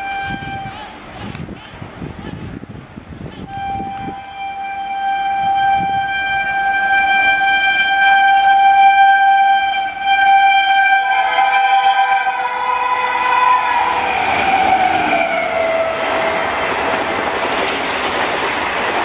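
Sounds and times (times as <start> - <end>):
second horn tone: 0.0 - 0.9, 3.4 - 16.6
locomotive horn blast: 0.0 - 1.4, 3.4 - 17.2
oncoming train noise: 0.0 - 19.0.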